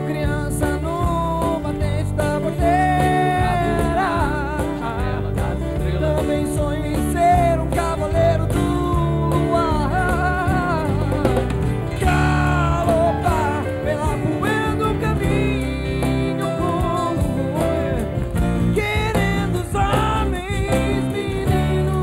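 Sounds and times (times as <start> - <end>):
keyboard chords: 0.0 - 22.0
man singing: 0.0 - 22.0
strummed acoustic guitars: 0.0 - 22.0.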